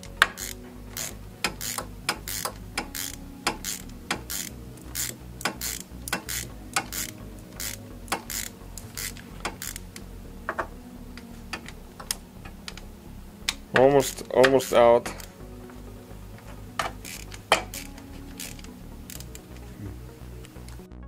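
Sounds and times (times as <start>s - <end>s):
hand ratchet clicking: 0.1s - 10.1s, 11.5s - 12.8s, 13.5s - 15.4s, 16.8s - 19.6s.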